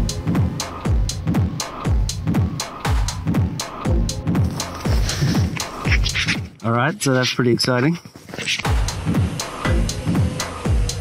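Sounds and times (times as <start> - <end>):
deep kick drums: 0.0 - 4.5, 8.8 - 11.0
crisp hi-hats: 0.0 - 7.4, 8.5 - 11.0.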